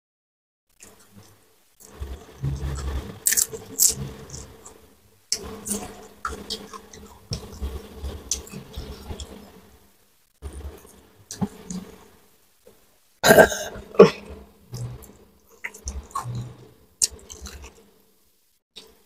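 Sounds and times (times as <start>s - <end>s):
wet chewing: 3.2s - 7.5s, 14.8s - 17.8s
crunching fried fish: 3.2s - 7.6s.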